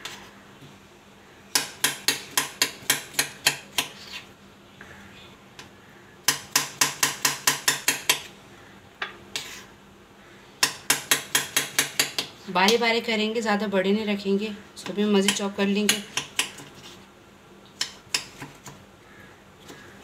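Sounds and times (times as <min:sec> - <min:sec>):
knife chopping on stone countertop: 0:01.5 - 0:04.2, 0:06.3 - 0:08.3, 0:10.6 - 0:12.3, 0:15.2 - 0:16.7, 0:17.8 - 0:18.8.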